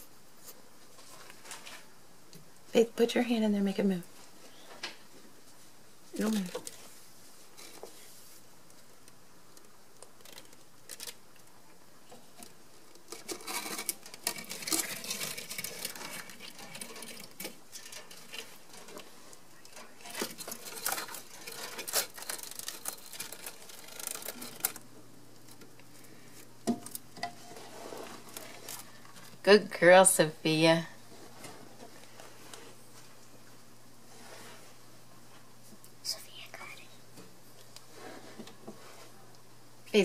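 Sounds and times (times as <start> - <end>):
rapid scratching and pattering: 13.0 - 24.8.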